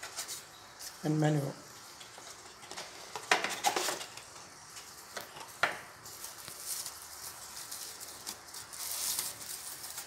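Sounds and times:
plastic bag crinkling: 5.2s - 10.0s.

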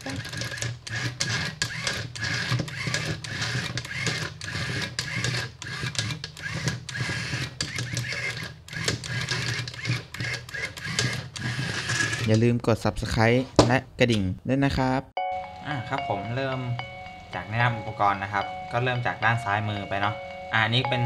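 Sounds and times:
small gear motors whirring: 0.0s - 12.4s.

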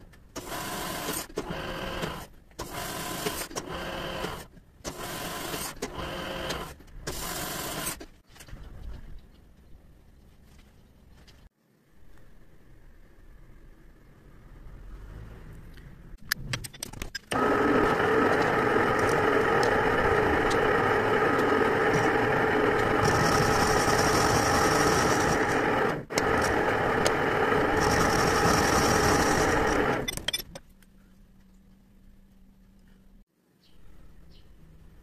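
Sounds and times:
clicks: 15.7s - 31.8s
metal lathe running: 17.3s - 30.1s.

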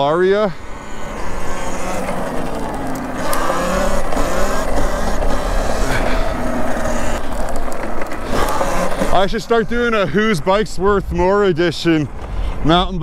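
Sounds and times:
tyre noise: 0.0s - 13.0s
electric motor whine: 0.5s - 10.0s
wind rumbling on microphone: 9.1s - 13.0s.

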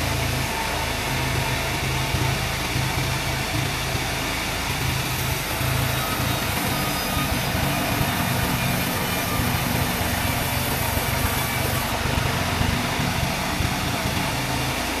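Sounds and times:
band saw drone: 0.0s - 15.0s
lorry engine running: 0.0s - 15.0s.

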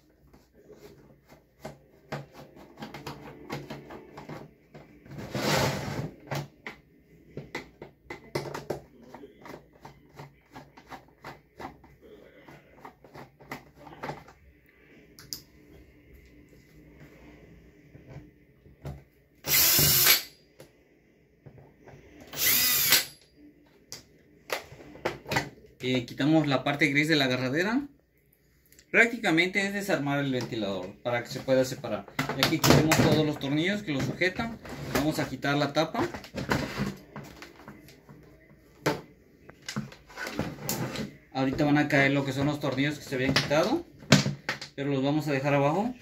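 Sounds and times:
power drill driving screws: 19.5s - 20.3s, 22.3s - 23.1s.

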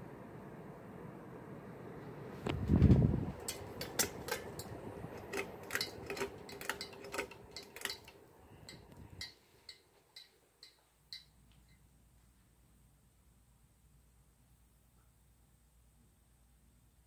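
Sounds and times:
ceiling fan running: 0.0s - 17.0s
pull chain clicking on glass: 3.5s - 11.3s.

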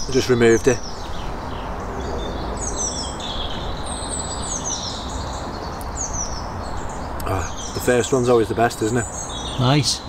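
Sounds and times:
small birds singing: 0.0s - 10.0s.

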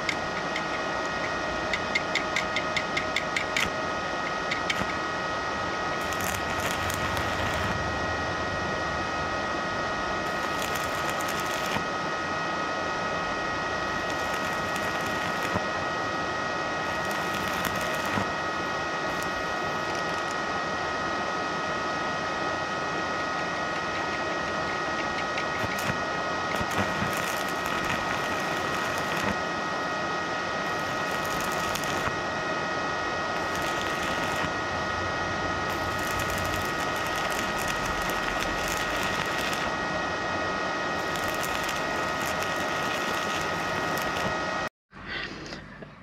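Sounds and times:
high whining tones: 3.3s - 20.7s, 23.0s - 44.7s
welding arc crackling: 4.4s - 5.0s, 5.9s - 7.9s, 10.2s - 11.9s, 13.7s - 15.8s, 16.8s - 20.4s, 25.4s - 29.6s, 30.6s - 32.3s, 33.3s - 34.6s, 35.6s - 39.8s, 41.0s - 44.5s.

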